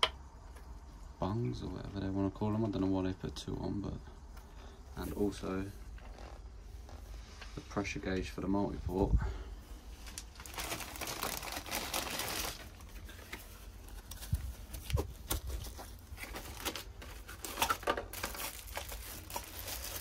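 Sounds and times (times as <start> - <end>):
plastic bag crinkling: 9.9 - 20.0.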